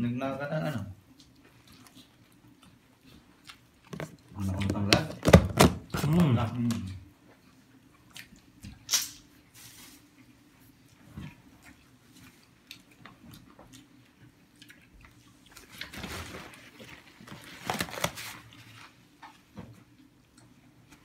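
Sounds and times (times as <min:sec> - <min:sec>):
chewing and biting: 0:01.1 - 0:04.8, 0:06.8 - 0:09.0, 0:10.2 - 0:16.0.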